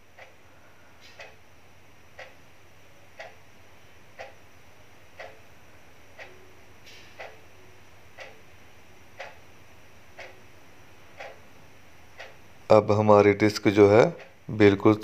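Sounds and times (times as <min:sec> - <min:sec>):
faint steady hum: 0:00.0 - 0:15.0
clock ticking: 0:00.1 - 0:00.4, 0:01.2 - 0:01.4, 0:02.2 - 0:02.4, 0:03.2 - 0:03.4, 0:04.2 - 0:04.4, 0:05.2 - 0:05.4, 0:06.2 - 0:06.4, 0:07.2 - 0:07.4, 0:08.2 - 0:08.4, 0:09.2 - 0:09.4, 0:10.2 - 0:10.4, 0:11.2 - 0:11.4, 0:12.2 - 0:12.4, 0:13.7 - 0:14.8.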